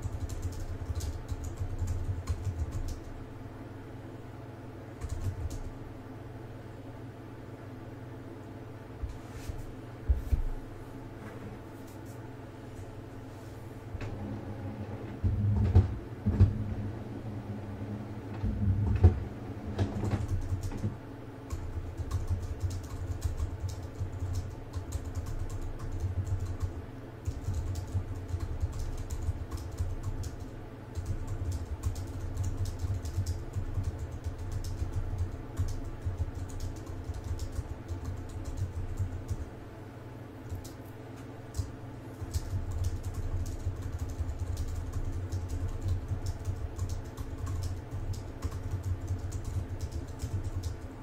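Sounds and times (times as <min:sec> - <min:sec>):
computer keyboard typing: 0:00.0 - 0:03.2, 0:05.0 - 0:05.7, 0:19.8 - 0:20.9, 0:21.5 - 0:39.5, 0:40.5 - 0:40.9, 0:41.5 - 0:50.9.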